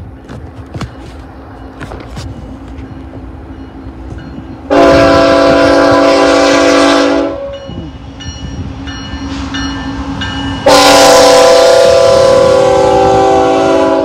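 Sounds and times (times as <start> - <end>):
diesel locomotive engines: 0.0 - 14.0
train air horn blast: 4.7 - 7.6, 10.6 - 14.0.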